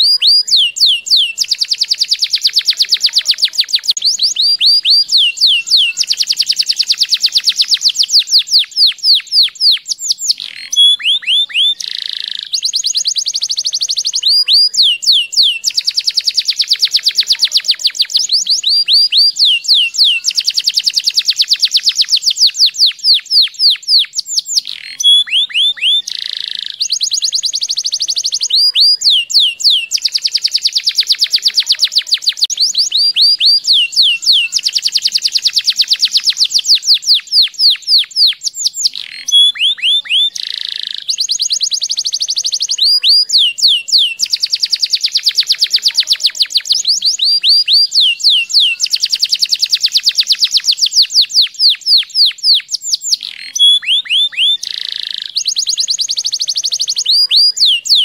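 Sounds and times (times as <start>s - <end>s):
canary singing trills: 0.0s - 58.0s.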